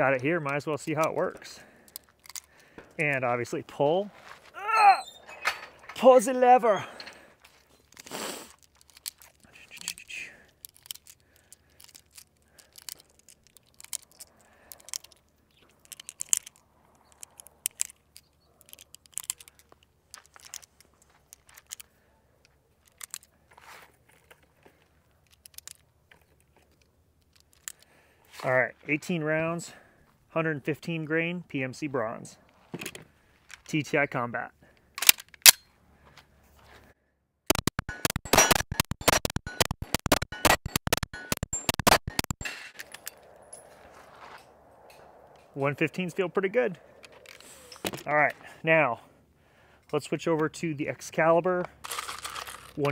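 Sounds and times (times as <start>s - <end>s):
cartridges clicking into magazine: 10.6s - 19.8s, 35.0s - 35.6s.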